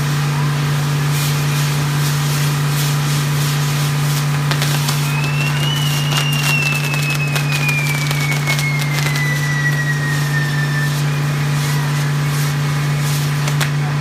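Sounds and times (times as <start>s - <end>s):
firework crackles and pops: 0.0s - 14.0s
firework whistle falling in pitch: 4.3s - 13.6s.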